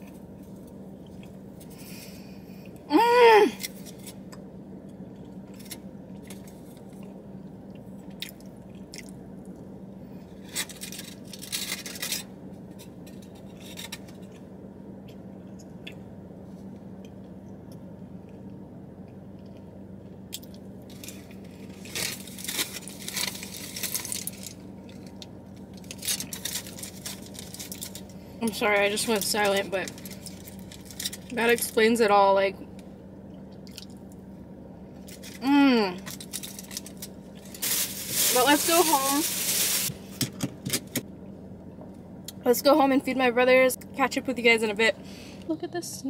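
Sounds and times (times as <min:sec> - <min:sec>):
foil wrapper crinkling: 0:10.4 - 0:14.1, 0:20.9 - 0:31.8, 0:36.0 - 0:40.0.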